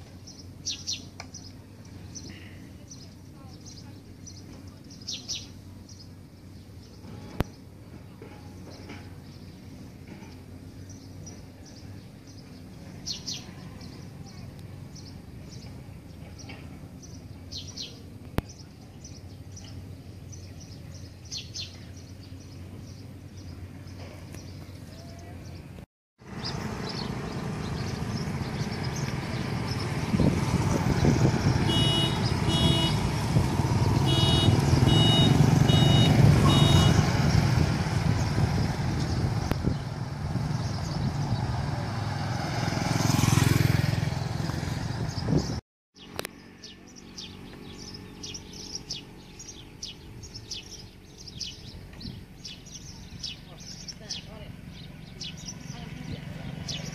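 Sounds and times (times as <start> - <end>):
motorbike and traffic noise: 0.0 - 56.9
vehicle passing close: 26.2 - 56.9.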